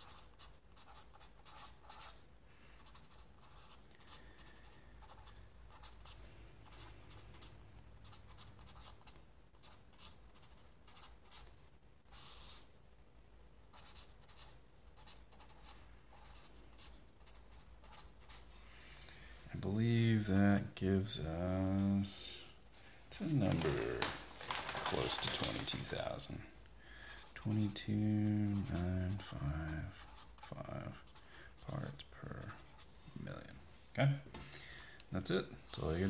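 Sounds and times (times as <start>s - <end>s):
marker scratching on paper: 0.0s - 2.2s, 2.8s - 11.5s, 12.1s - 12.7s, 13.7s - 18.5s, 27.1s - 33.0s, 35.7s - 36.0s.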